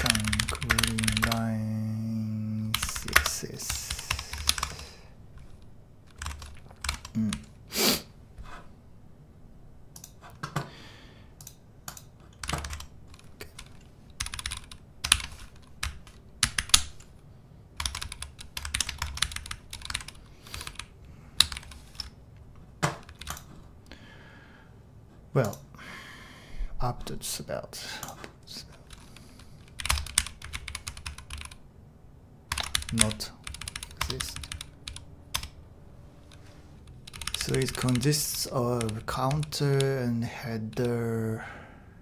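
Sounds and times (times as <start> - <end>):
typing on computer keyboard: 0.0 - 1.5, 2.7 - 4.8, 5.4 - 7.5, 11.4 - 17.1, 17.8 - 22.2, 22.8 - 23.5, 28.8 - 31.6, 32.5 - 35.6, 37.0 - 39.9.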